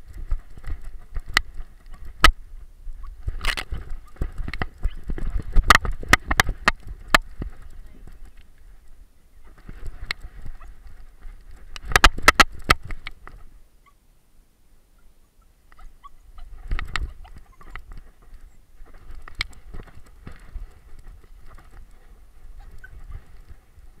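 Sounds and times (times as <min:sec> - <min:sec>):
rustling long grass: 0:00.0 - 0:24.0
camera harness knocking and rattling: 0:03.3 - 0:07.6, 0:11.8 - 0:13.2.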